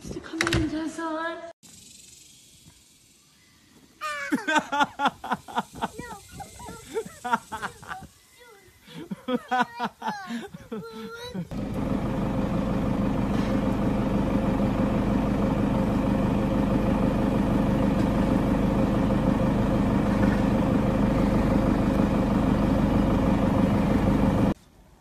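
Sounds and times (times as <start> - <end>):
engine idling hum: 11.0 - 24.6.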